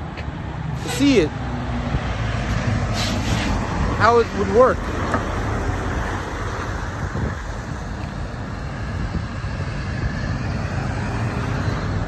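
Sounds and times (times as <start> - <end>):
road traffic: 0.0 - 12.0
wind rumbling on microphone: 4.8 - 12.0.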